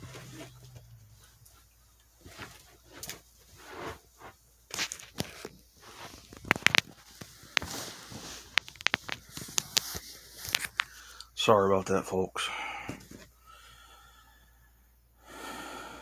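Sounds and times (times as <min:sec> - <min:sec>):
rustling against clothing: 0:00.0 - 0:11.0.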